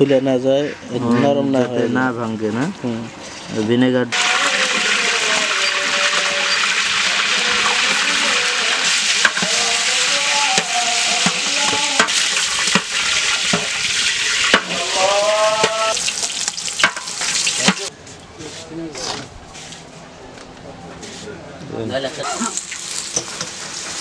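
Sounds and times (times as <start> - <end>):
chicken deep-frying in hot oil: 3.2 - 17.9, 22.3 - 24.0.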